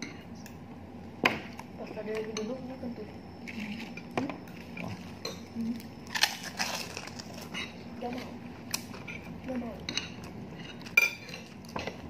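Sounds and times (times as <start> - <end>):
person chewing: 6.0 - 9.3
cutlery clinking on a plate: 9.9 - 12.0.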